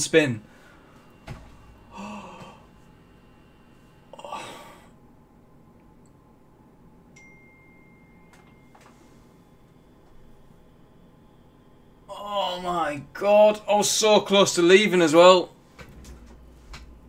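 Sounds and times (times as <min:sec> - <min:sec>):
man exhaling: 0:01.7 - 0:03.0, 0:04.0 - 0:05.0
faint high tone: 0:07.1 - 0:12.7.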